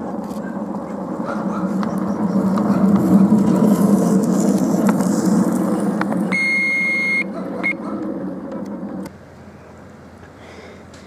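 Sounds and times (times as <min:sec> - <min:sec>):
train wheels rumbling on rails: 0:00.0 - 0:06.4
high steady beep: 0:06.3 - 0:07.8.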